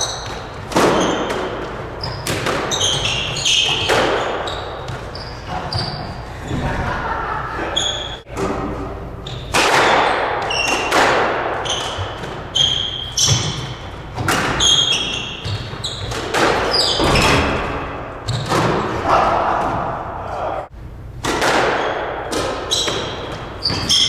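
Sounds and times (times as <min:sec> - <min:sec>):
shoes squeaking on hardwood floor: 0:00.0 - 0:06.7, 0:07.6 - 0:08.3, 0:11.6 - 0:17.6, 0:22.7 - 0:24.0
squash ball hitting rackets and walls: 0:00.0 - 0:06.9, 0:07.6 - 0:24.0.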